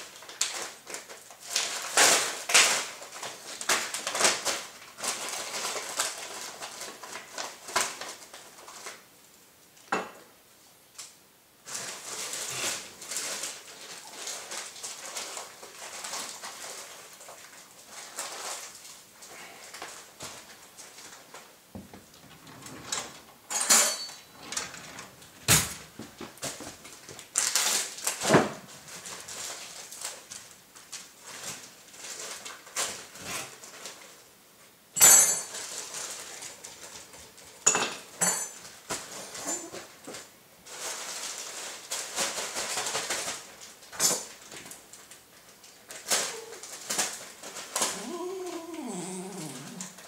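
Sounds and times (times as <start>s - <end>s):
dishes and cutlery clinking: 23.0s - 24.7s, 37.6s - 39.9s.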